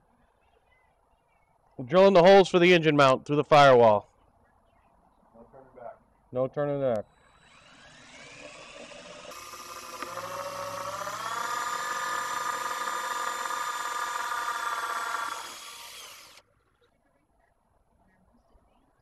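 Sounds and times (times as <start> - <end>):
cordless drill whining: 7.1 - 16.4.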